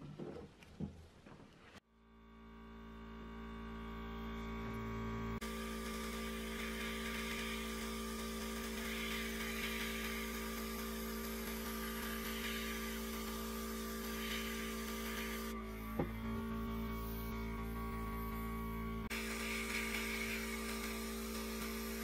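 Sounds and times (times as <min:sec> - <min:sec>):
constant low hum: 0:00.7 - 0:22.0
airbrush spraying hiss: 0:05.6 - 0:15.6.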